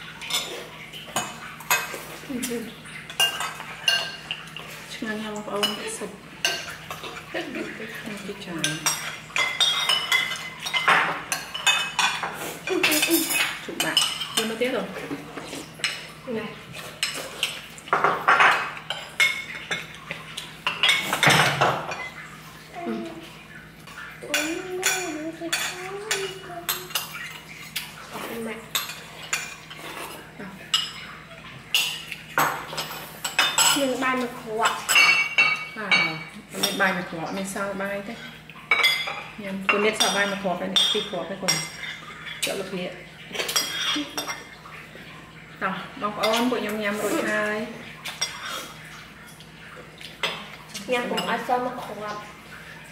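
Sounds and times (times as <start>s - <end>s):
cutlery clinking against dishes: 0.2s - 4.8s, 8.6s - 16.1s, 16.8s - 22.3s, 23.9s - 37.0s, 38.6s - 42.7s, 43.3s - 44.8s, 48.0s - 51.5s
cutlery clinking on plates: 8.6s - 16.1s, 43.3s - 44.6s.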